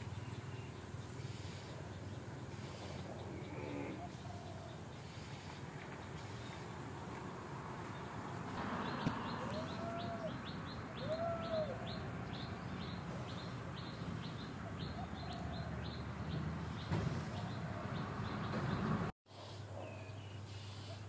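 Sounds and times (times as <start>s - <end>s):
lower rising and falling bird calls: 0.0s - 19.1s
high falling bird chirps: 8.0s - 19.0s.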